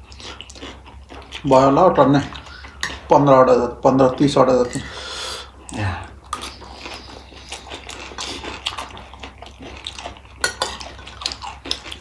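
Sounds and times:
chewing: 0.0 - 1.5, 2.2 - 3.1, 5.6 - 12.0
metal spoons clinking on plates: 10.4 - 10.9.

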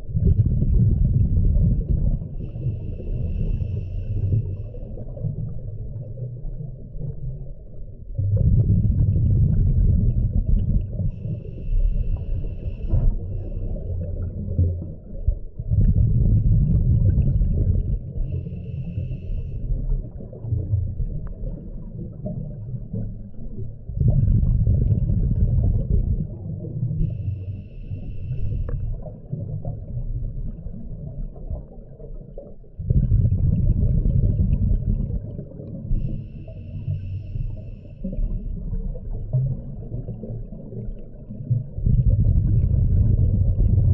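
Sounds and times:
exhaled bubbles rumbling: 0.0 - 43.9
regulator inhale hiss: 2.4 - 4.9, 11.2 - 13.8, 18.3 - 19.8, 27.0 - 29.0, 35.9 - 38.3.

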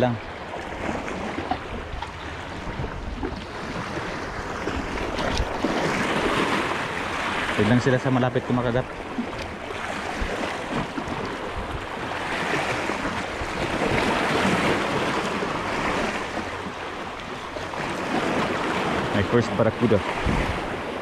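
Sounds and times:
sea water washing at shore: 0.0 - 21.0
wind on microphone: 0.8 - 7.8, 8.4 - 21.0.

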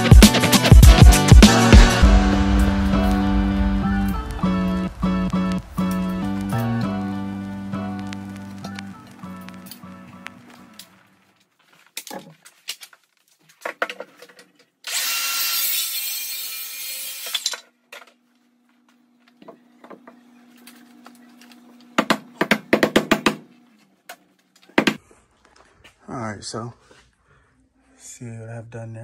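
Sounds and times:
loud hiss: 0.0 - 8.4
sharp knocks on wood studs: 22.0 - 23.5, 24.7 - 25.0.

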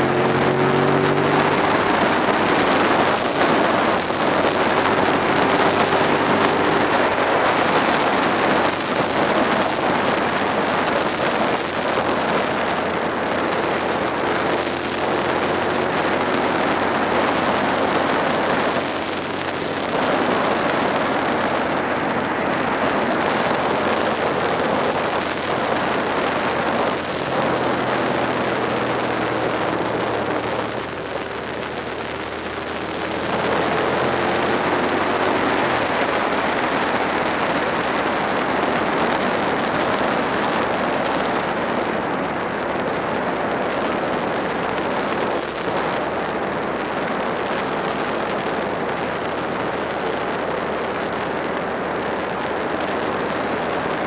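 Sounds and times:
motorcycle engine: 0.0 - 54.0
wind rush on microphone: 0.0 - 54.0.

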